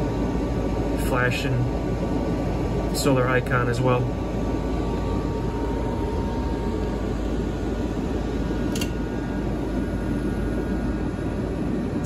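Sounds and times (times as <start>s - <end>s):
cooling fans running: 0.0s - 12.0s
sharp click: 8.7s - 9.0s.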